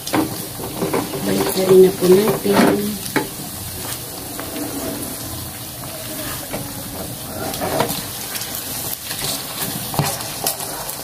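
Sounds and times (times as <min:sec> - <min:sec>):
pork sizzling in oil: 0:00.0 - 0:11.0
spatula scraping pan: 0:00.1 - 0:11.0.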